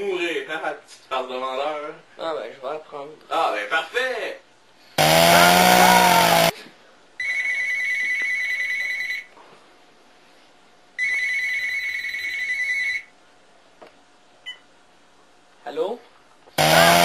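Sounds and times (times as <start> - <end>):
loud rasping noise: 5.0 - 6.5, 16.6 - 17.0
electronic telephone ringing: 11.0 - 13.1.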